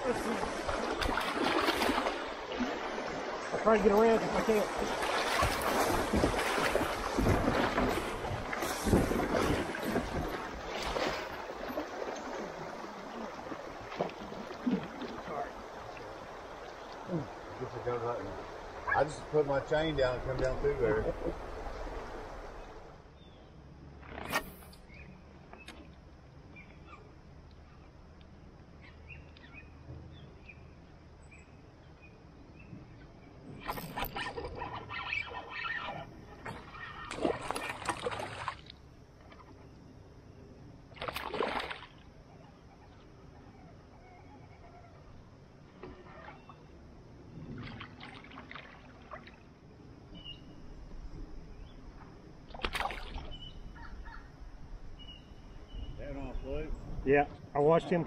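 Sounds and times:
water splashing: 0.0 - 22.9, 33.6 - 39.6, 40.9 - 42.1, 47.4 - 49.6, 52.5 - 53.6.

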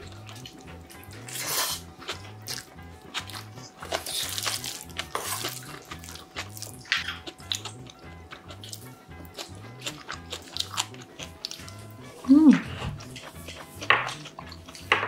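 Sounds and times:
chewing: 0.0 - 15.0
soft background music: 0.0 - 15.0.

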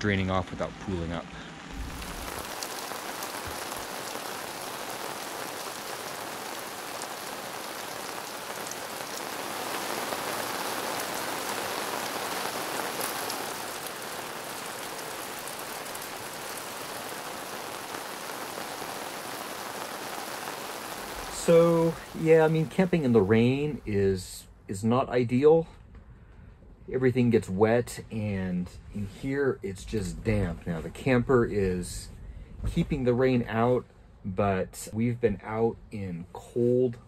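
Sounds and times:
rain on fabric awning: 1.7 - 24.2.

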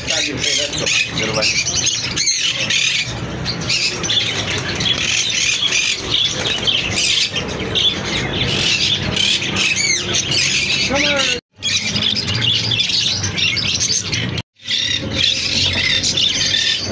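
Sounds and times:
parakeets squawking: 0.0 - 16.9.

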